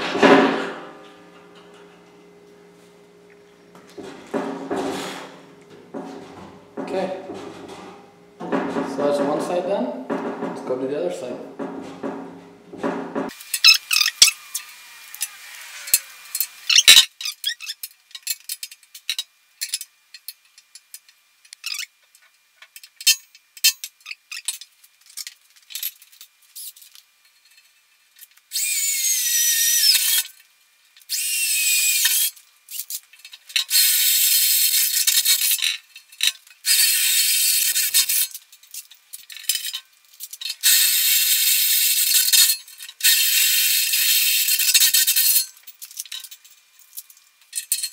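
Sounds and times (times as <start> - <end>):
cordless drill whining through steel: 13.4 - 17.0, 28.5 - 30.3, 31.1 - 32.4, 33.7 - 35.5, 36.7 - 38.2, 40.6 - 42.3.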